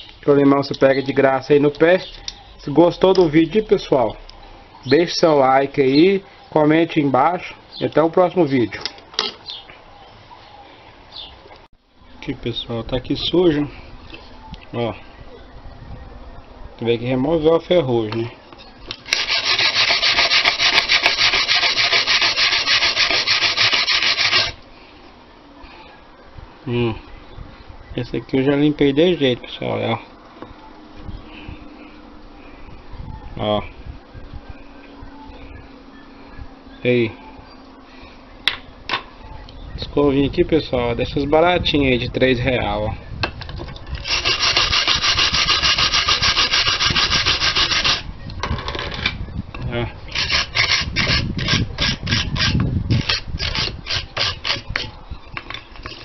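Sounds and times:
wire brush scrubbing rusty metal: 19.0s - 24.6s, 44.0s - 48.1s, 50.1s - 54.9s.

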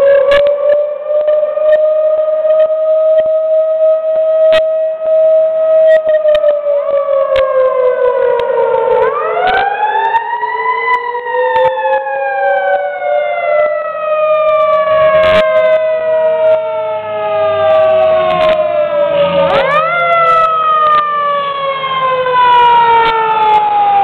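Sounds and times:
fire engine siren wailing: 0.0s - 24.0s
truck engine: 13.9s - 24.0s.

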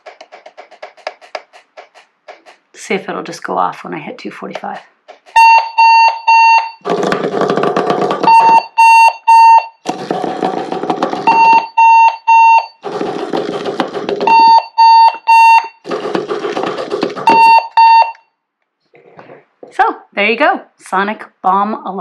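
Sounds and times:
alarm clock high beeps: 5.3s - 6.8s, 8.3s - 9.8s, 11.2s - 12.8s, 14.2s - 15.9s, 17.2s - 18.3s
alarm clock harsh buzzing: 5.3s - 6.9s, 11.2s - 12.8s, 14.2s - 15.9s, 17.2s - 18.2s.

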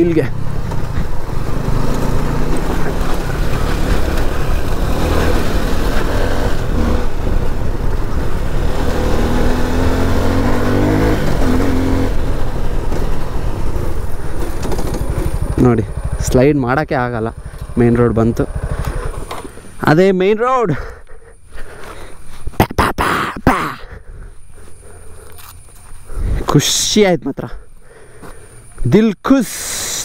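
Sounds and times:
motorcycle engine under load: 0.0s - 19.9s.

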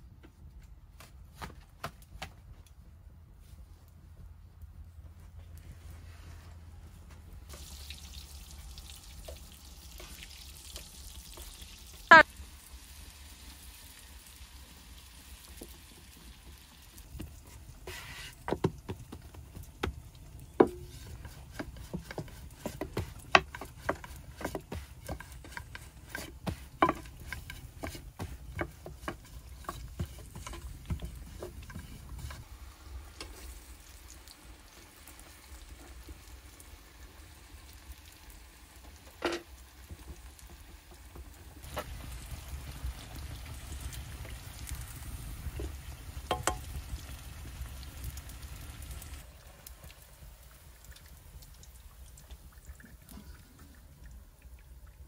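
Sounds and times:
utensil knocking in cooking pot: 18.5s - 32.4s, 46.2s - 46.8s.

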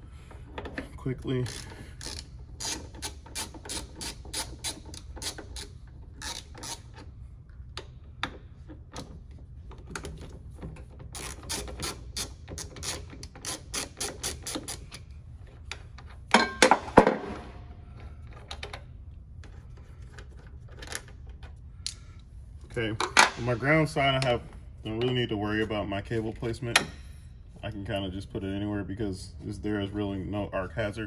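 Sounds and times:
hand ratchet clicking: 1.4s - 7.1s, 11.1s - 15.0s.

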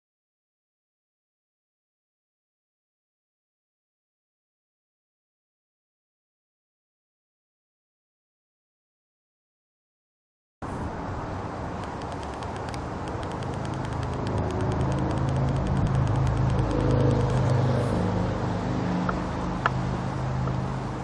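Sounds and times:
passing vehicle engine hum: 10.6s - 21.0s
faint rapid ticking: 11.8s - 17.7s.

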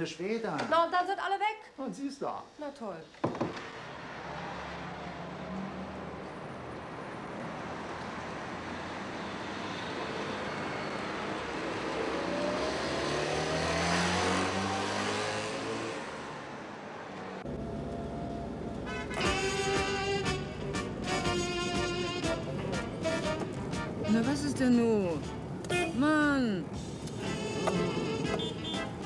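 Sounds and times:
street traffic: 2.0s - 29.0s
car engine accelerating: 10.2s - 21.1s
dull in-car hum: 17.4s - 21.4s
music: 18.9s - 26.0s, 26.8s - 29.0s.

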